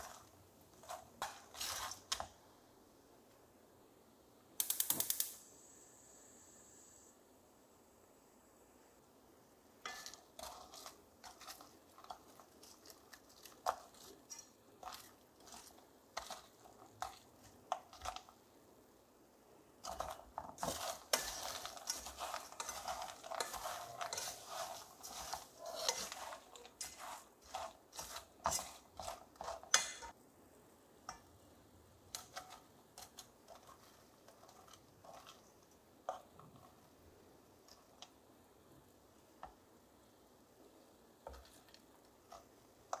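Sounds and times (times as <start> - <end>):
nuts scraping in metal pot: 0.0 - 2.3, 9.8 - 18.4, 19.8 - 30.1, 32.1 - 36.6.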